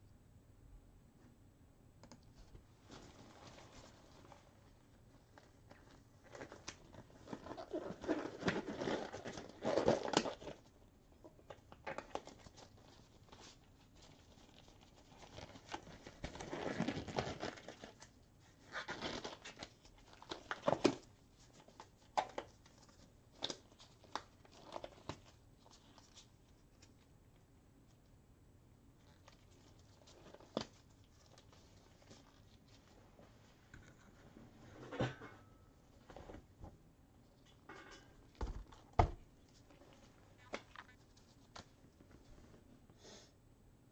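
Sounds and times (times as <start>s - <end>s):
packaging crinkling and rustling: 2.8s - 4.7s, 5.3s - 10.8s, 11.4s - 27.1s, 29.0s - 34.0s, 38.2s - 42.6s.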